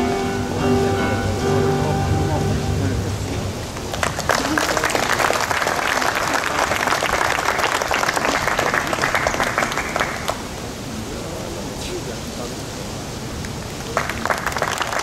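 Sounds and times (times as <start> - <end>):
audience applauding: 3.6 - 10.7, 13.4 - 15.0.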